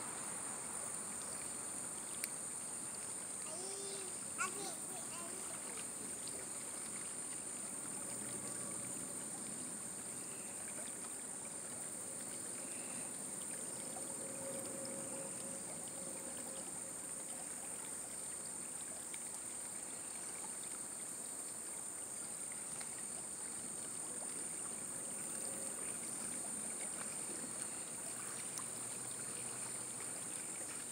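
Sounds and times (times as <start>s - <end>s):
river water rushing: 0.0s - 2.0s
insects droning: 0.0s - 30.9s.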